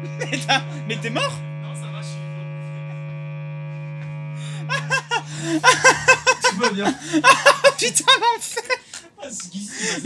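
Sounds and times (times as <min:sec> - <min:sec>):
people laughing: 0:00.0 - 0:01.4, 0:04.4 - 0:09.0
guitar amplifier hum and buzz: 0:00.0 - 0:07.8.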